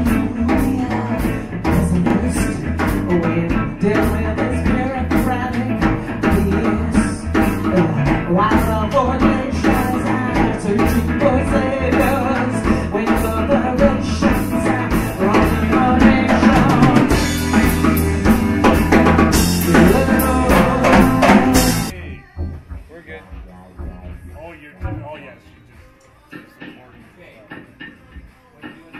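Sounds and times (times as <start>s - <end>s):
blues-rock band playing: 0.0s - 22.0s
drum kit beat: 0.0s - 28.9s.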